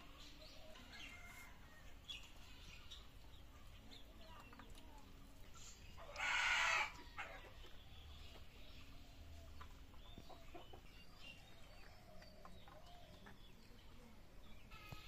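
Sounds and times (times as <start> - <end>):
distant chickens calling: 6.0 - 7.6
loud harsh chicken call: 6.2 - 7.0.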